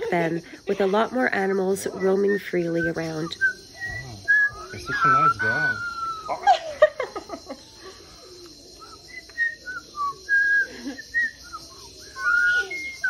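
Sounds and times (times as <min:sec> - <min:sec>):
bird whistling: 0:01.4 - 0:06.6, 0:08.6 - 0:13.0.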